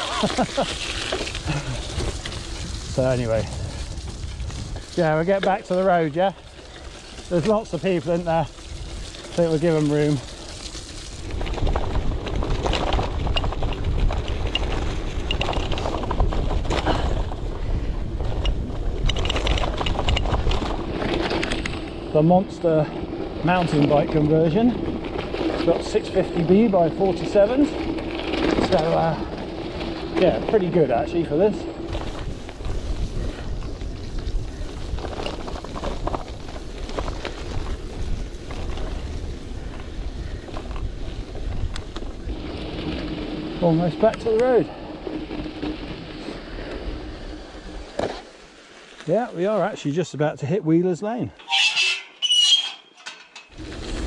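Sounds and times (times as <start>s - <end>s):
bike rattling over rough ground: 0.0s - 50.2s, 51.0s - 54.0s
bicycle tyres rumbling on trail: 0.0s - 51.1s, 53.5s - 54.0s
wind buffeting microphone: 0.6s - 48.0s
crunches and rattles: 6.6s - 22.2s, 51.4s - 54.0s.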